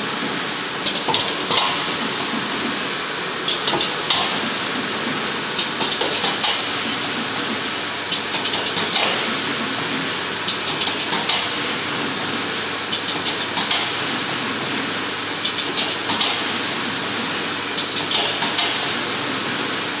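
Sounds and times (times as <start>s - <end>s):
rapid machine clicking: 8.1s - 9.8s, 10.4s - 11.6s, 15.4s - 16.7s, 17.8s - 19.0s.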